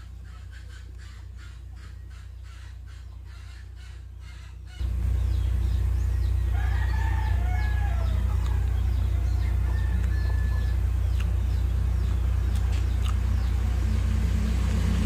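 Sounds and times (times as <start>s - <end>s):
steady low hum: 0.0s - 15.0s
rooster crowing: 6.2s - 11.0s.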